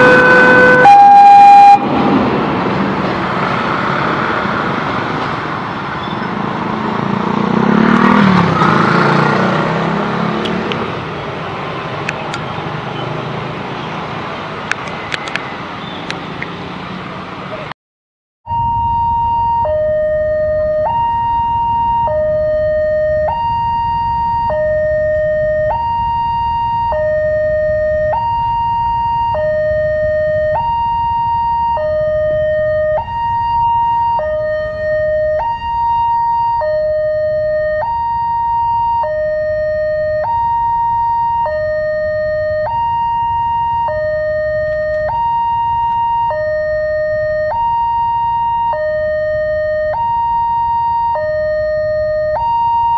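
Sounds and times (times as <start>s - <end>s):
level crossing alarm two-tone: 0.0s - 1.8s, 18.5s - 52.9s.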